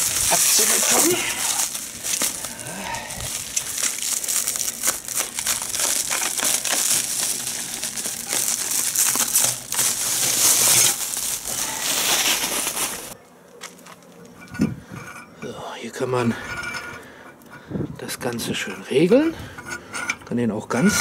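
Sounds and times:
plastic wrap crinkling: 0.0s - 14.3s.

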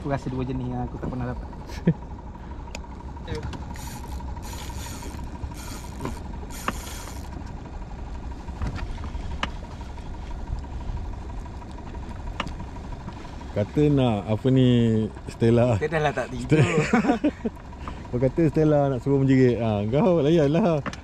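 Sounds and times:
boat engine idling: 0.0s - 21.0s
short high hissing bursts: 3.7s - 7.3s.

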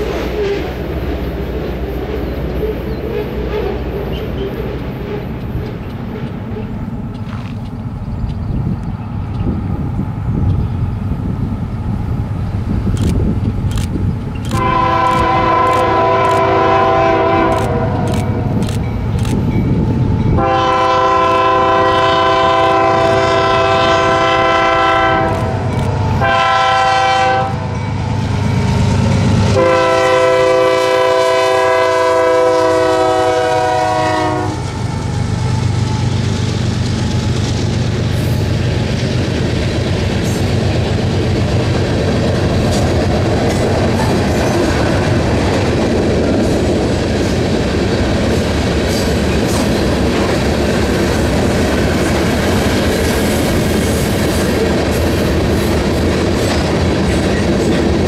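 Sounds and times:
locomotive engine drone: 0.0s - 58.0s
train air horn blasts: 14.4s - 18.5s, 20.3s - 27.8s, 29.5s - 36.2s.

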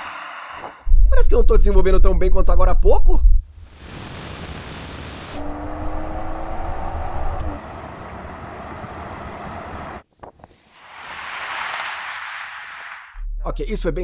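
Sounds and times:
road and wind noise: 4.4s - 13.2s
car engine accelerating: 5.4s - 10.0s.

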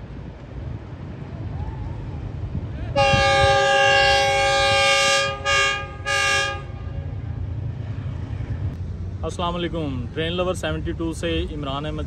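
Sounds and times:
low train rumble: 0.0s - 12.0s
locomotive air horn: 2.9s - 7.1s.

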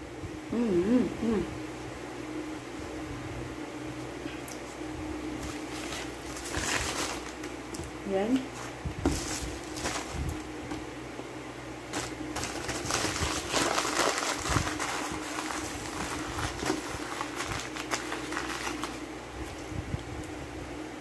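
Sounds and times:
paper bag crumpling: 5.4s - 7.5s, 8.6s - 10.4s, 11.9s - 19.0s.

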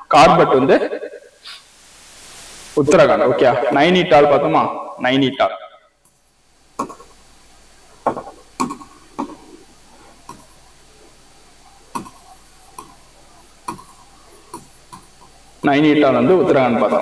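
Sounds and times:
stylus tapping on screen: 6.8s - 7.2s, 8.0s - 9.5s, 11.9s - 13.0s, 13.6s - 15.3s.

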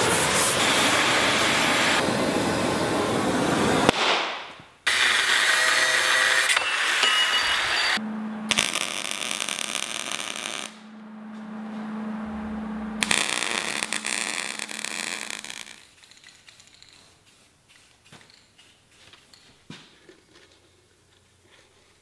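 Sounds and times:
steady low hum: 8.0s - 15.5s
arc welder crackling: 8.5s - 10.8s, 13.0s - 18.1s.

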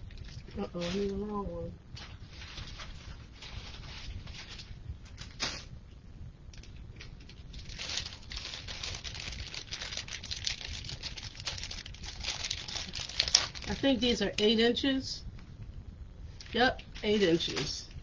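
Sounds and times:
plastic zip ties rustling: 6.5s - 13.8s.

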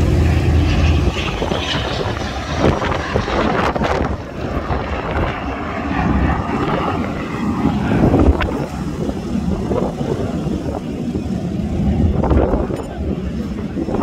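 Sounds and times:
propeller aircraft engines droning: 0.0s - 14.0s.

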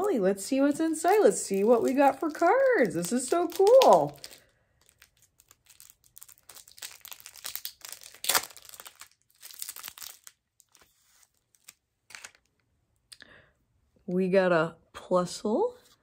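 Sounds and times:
card wrapping crinkling and tearing: 0.6s - 12.6s.

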